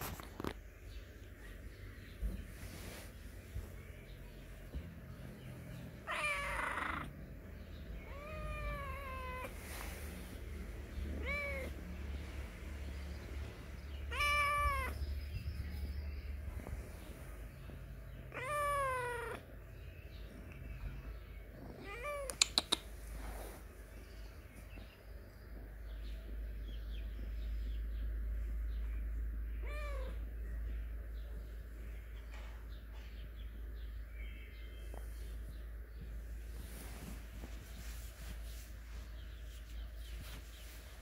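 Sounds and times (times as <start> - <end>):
cat meowing: 6.0 - 7.1, 8.0 - 9.6, 11.1 - 11.8, 14.1 - 15.0, 18.3 - 19.4, 21.8 - 22.4, 29.6 - 30.2.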